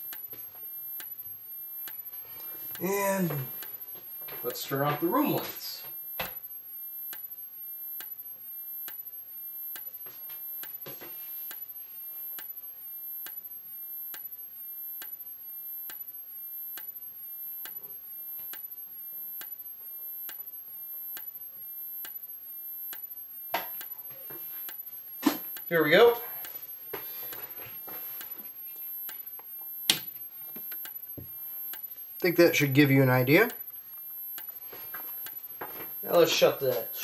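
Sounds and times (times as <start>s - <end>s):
strobe clicking: 0.0s - 10.8s, 11.4s - 24.0s, 24.6s - 25.8s, 26.4s - 36.9s
high-pitched electronic whine: 0.0s - 37.0s.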